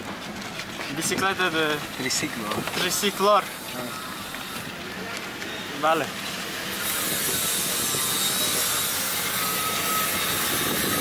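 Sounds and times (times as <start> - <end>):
wheels rolling on road: 0.0 - 11.0
wind on microphone: 6.6 - 11.0.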